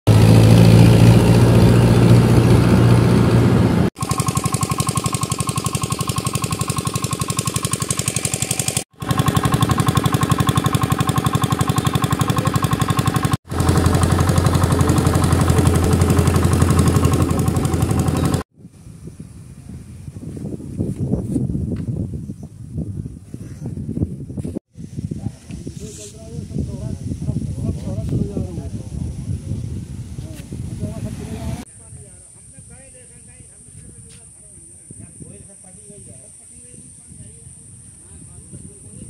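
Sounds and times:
diesel tractor engine running: 0:00.1 - 0:18.4.

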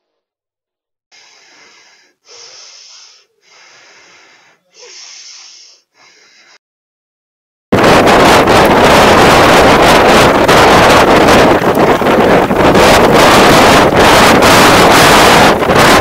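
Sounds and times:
person breathing heavily: 0:01.2 - 0:06.6.

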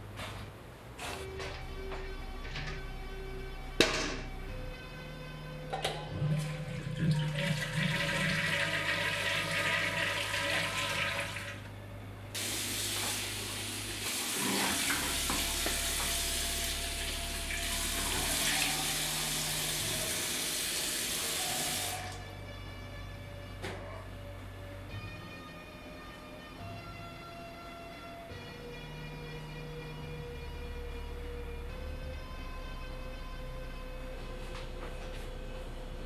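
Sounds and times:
toilet flushing: 0:06.0 - 0:11.7, 0:12.4 - 0:22.3
tap running into sink: 0:14.0 - 0:16.3.

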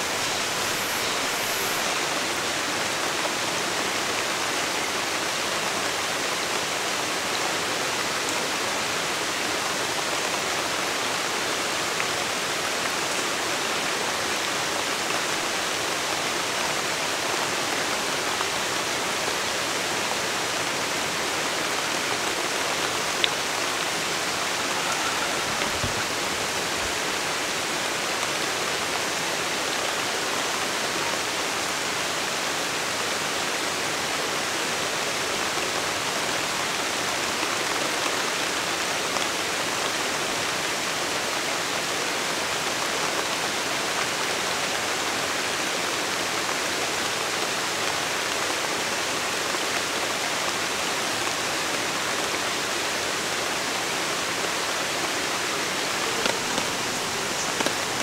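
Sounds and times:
rain pattering on water: 0:00.0 - 0:58.0
stream flowing: 0:00.0 - 0:58.0.

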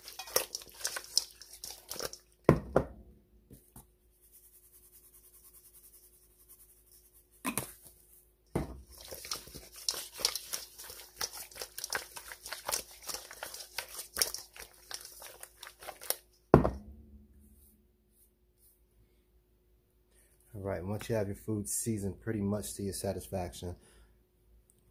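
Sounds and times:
meat slapping in metal bowl: 0:00.0 - 0:02.9, 0:08.6 - 0:17.0.

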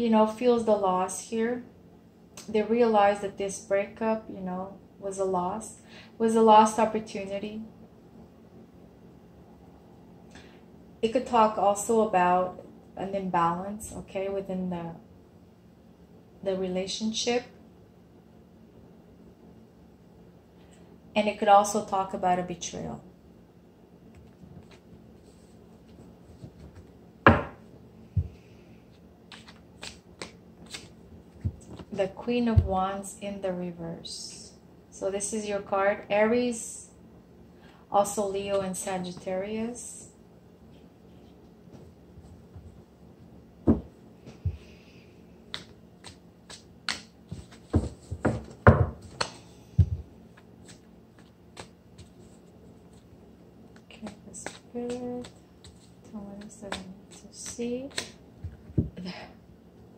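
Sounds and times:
sharp knock on table: 0:27.3 - 0:27.6
hands tapping cards: 0:29.3 - 0:31.9, 0:45.5 - 0:52.3, 0:53.8 - 0:59.0.

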